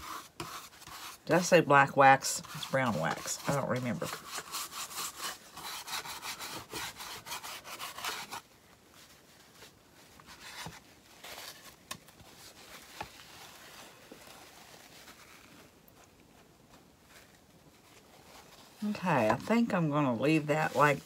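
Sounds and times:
wax rubbing on wood: 0:00.0 - 0:08.4.

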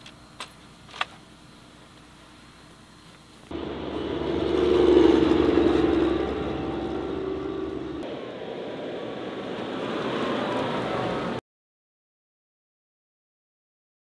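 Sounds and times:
armoured vehicle driving by: 0:03.5 - 0:11.4
light military vehicle driving: 0:03.5 - 0:11.4.

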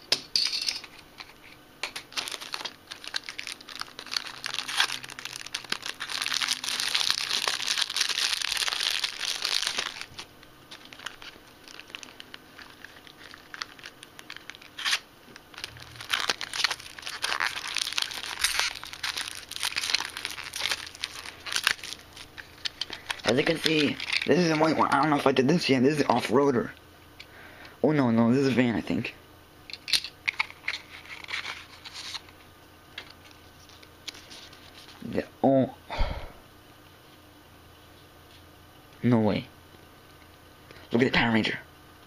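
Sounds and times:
plastic wrappers crinkling and tearing: 0:01.2 - 0:25.2, 0:30.2 - 0:32.4, 0:33.0 - 0:35.1.

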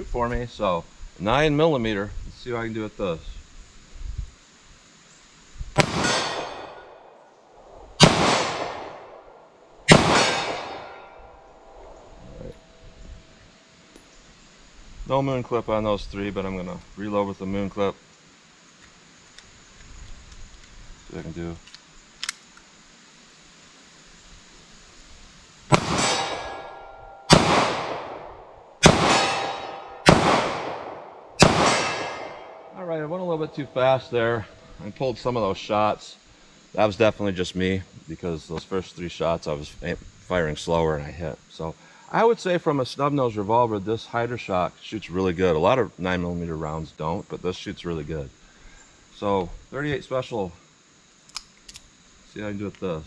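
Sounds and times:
revolver gunshots with echo: 0:05.8 - 0:07.1, 0:08.0 - 0:12.0, 0:25.7 - 0:32.8.

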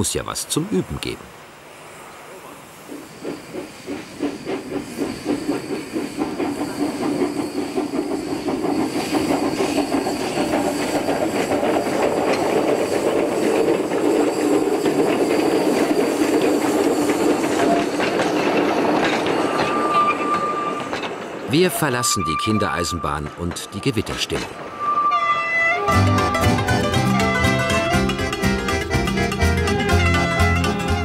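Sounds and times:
steam hissing: 0:00.5 - 0:23.0
steam locomotive chuffing: 0:02.3 - 0:31.0
train wheels clattering on rails: 0:02.7 - 0:24.8, 0:26.0 - 0:31.0.

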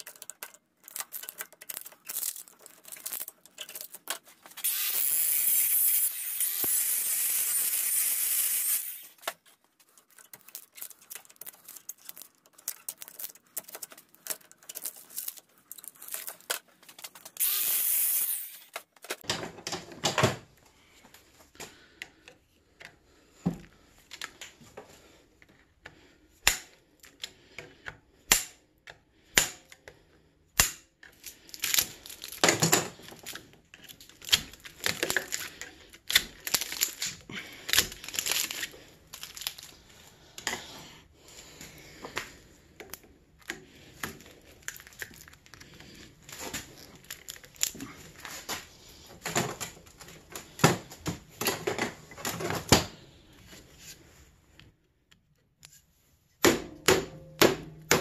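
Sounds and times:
hand tools clicking and knocking metal: 0:00.0 - 0:20.2
angle grinder cutting: 0:04.6 - 0:09.2, 0:17.4 - 0:18.8.

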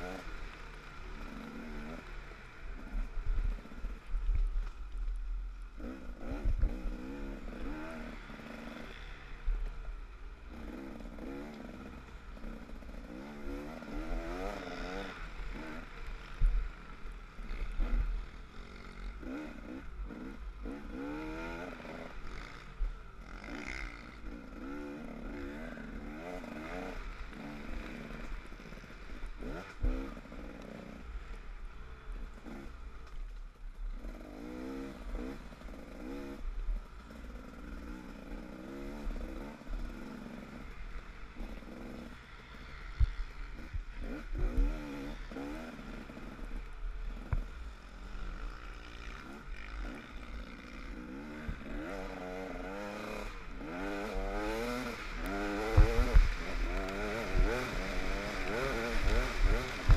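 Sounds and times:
off-road engine revving: 0:00.0 - 0:04.0, 0:05.8 - 0:09.4, 0:10.4 - 0:32.8, 0:33.9 - 0:59.9
wind rumble on microphone: 0:06.2 - 0:06.9, 0:54.4 - 0:59.9.

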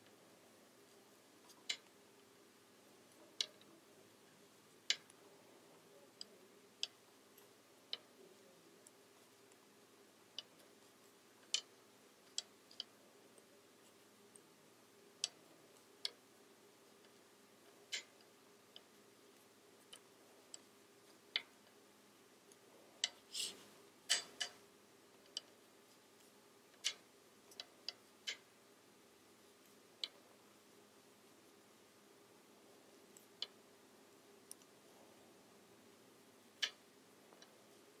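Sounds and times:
knitting needles clicking: 0:00.0 - 0:21.8, 0:22.4 - 0:28.6, 0:29.5 - 0:30.4, 0:33.1 - 0:33.6, 0:34.2 - 0:34.8, 0:36.4 - 0:38.0
short scrape: 0:23.3 - 0:23.7.

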